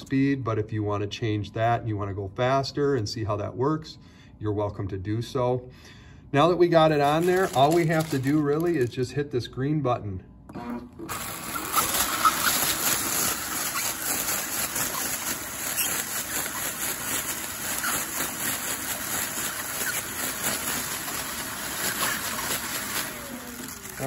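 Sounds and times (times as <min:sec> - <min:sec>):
rapid crackle of sealing film: 0:06.9 - 0:09.0, 0:11.1 - 0:24.0
air cushion machine whirring: 0:10.5 - 0:24.0.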